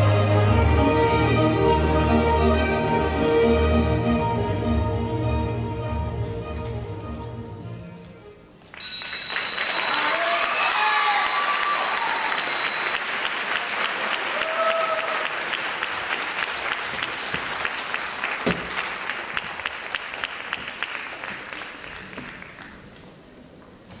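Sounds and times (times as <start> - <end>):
audience applauding: 8.7 - 23.0
thump: 18.4 - 18.8.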